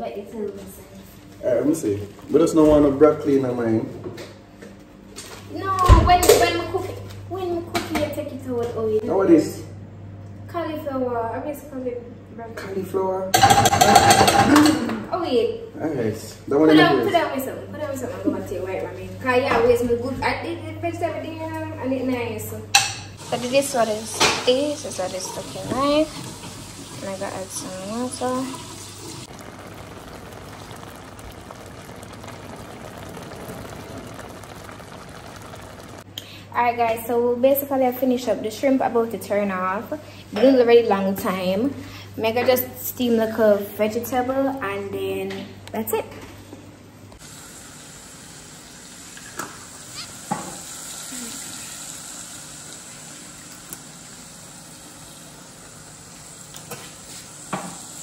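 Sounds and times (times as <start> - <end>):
liquid boiling in a pot: 22.9 - 36.7, 47.2 - 58.0
food sizzling in a pan: 23.1 - 36.1, 47.2 - 58.0.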